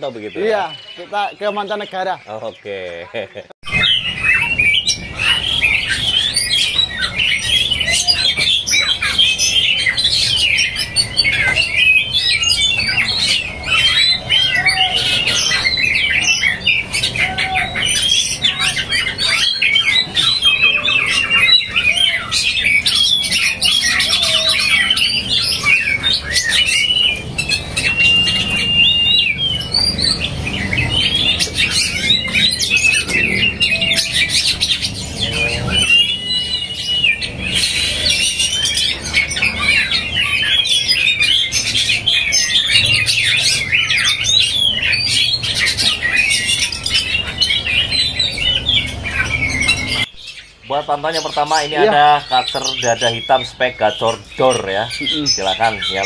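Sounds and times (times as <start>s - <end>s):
songbirds singing and chattering: 0.0s - 56.0s
long held bird whistle: 20.5s - 30.2s, 35.8s - 39.0s.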